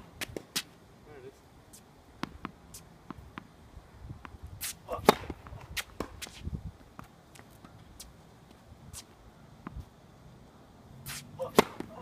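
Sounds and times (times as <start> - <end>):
tennis ball bouncing: 2.2 - 3.5, 4.2 - 6.4, 11.1 - 12.0
racket hitting tennis ball: 4.2 - 6.4, 11.0 - 12.0.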